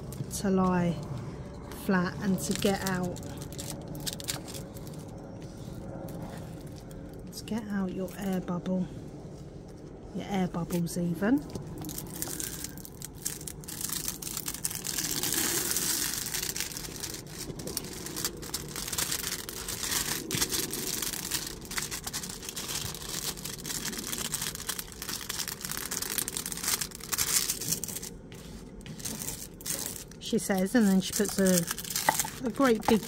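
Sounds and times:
plastic film crinkling: 0:02.2 - 0:07.2, 0:10.8 - 0:33.0
plastic tool smoothing film: 0:12.3 - 0:33.0.

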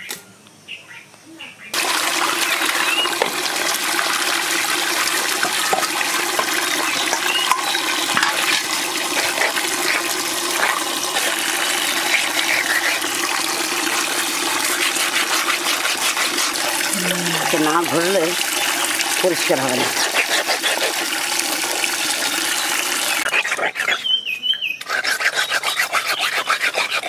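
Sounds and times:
water splashing: 0:01.8 - 0:23.9
knocks and clinks in colander: 0:05.4 - 0:08.8.

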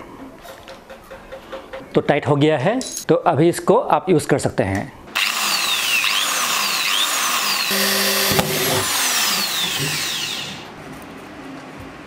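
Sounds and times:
electric drill boring into wood: 0:05.2 - 0:10.7.

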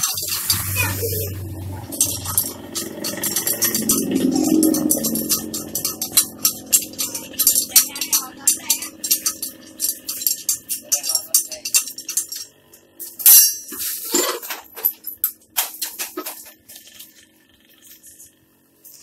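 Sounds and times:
loud metallic clank: 0:00.0 - 0:12.4
popcorn cooker drum rattling: 0:00.0 - 0:19.0.

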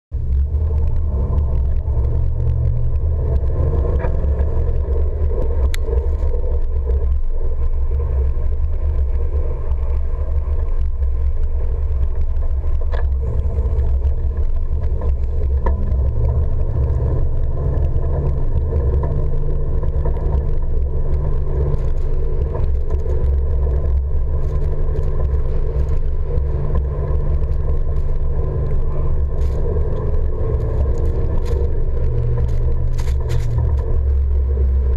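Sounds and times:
engine and tyres ploughing snow: 0:00.1 - 0:34.9
faint clicks: 0:00.2 - 0:34.9.

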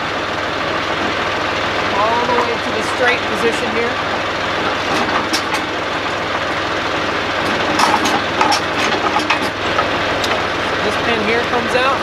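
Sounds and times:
tractor engine idling: 0:00.0 - 0:12.0
metal clanks and knocks: 0:02.0 - 0:11.0.

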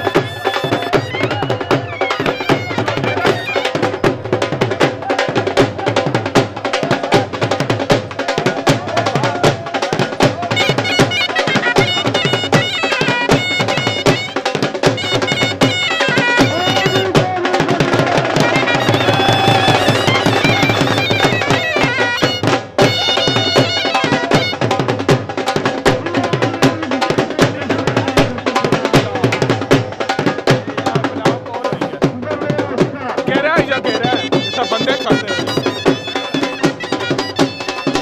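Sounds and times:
wind instrument melody: 0:00.0 - 0:05.2, 0:10.2 - 0:25.2, 0:33.4 - 0:38.0
fast drum beats: 0:00.0 - 0:38.0.

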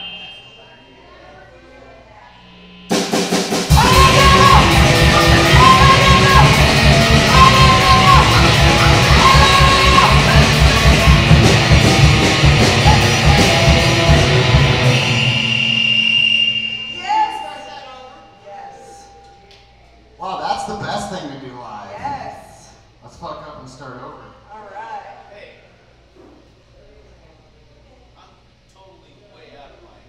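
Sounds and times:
held high tone ringing: 0:00.0 - 0:21.4
distorted guitar: 0:02.1 - 0:15.8
drums: 0:02.4 - 0:17.3
punk vocals: 0:03.7 - 0:15.0
bass guitar: 0:03.7 - 0:15.2.

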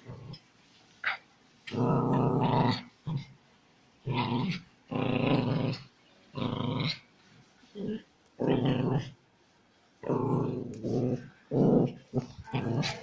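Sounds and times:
dog growling: 0:01.7 - 0:03.3, 0:04.0 - 0:07.1, 0:07.8 - 0:09.2, 0:10.0 - 0:13.0.

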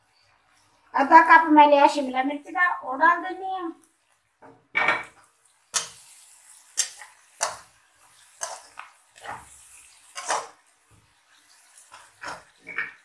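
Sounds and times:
metal spatula scraping a wok: 0:05.7 - 0:10.6.

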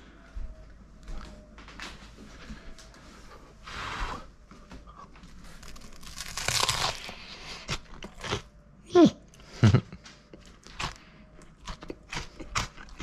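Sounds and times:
crunching bites of crisp bread: 0:05.5 - 0:08.5.

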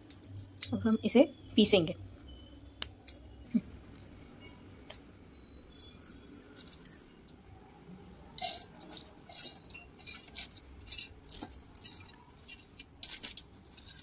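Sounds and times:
wet lentils rattling into steel jar: 0:08.3 - 0:14.0.

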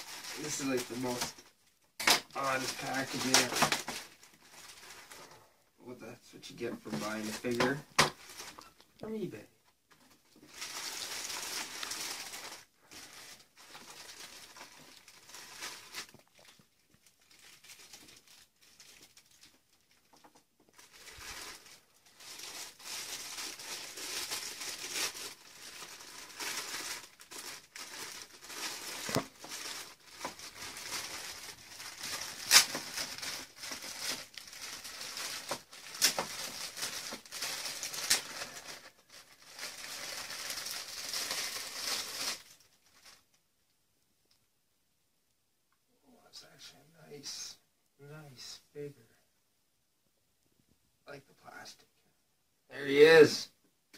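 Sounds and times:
plastic bags crinkling: 0:00.0 - 0:05.4, 0:06.5 - 0:09.3, 0:09.9 - 0:43.4.

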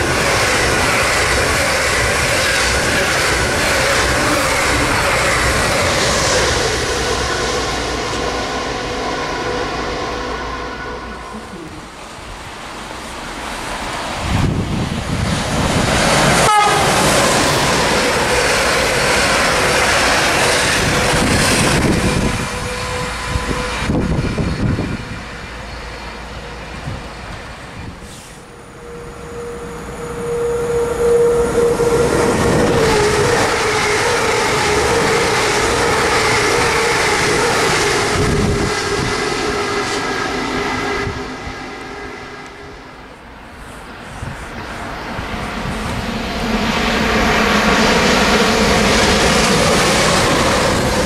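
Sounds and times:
train wheels clattering on rails: 0:00.0 - 0:08.5, 0:13.6 - 0:28.4
train horn: 0:00.0 - 0:11.9, 0:16.2 - 0:25.8, 0:28.4 - 0:43.2
rush of passing train: 0:00.0 - 0:51.0
steady pitched train tone: 0:00.0 - 0:51.0.

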